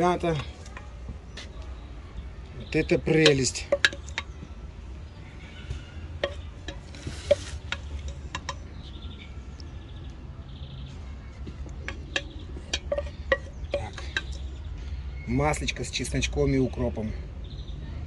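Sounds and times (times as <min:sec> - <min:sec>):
wooden spoon scraping a plate: 0:06.2 - 0:08.6, 0:11.8 - 0:14.5.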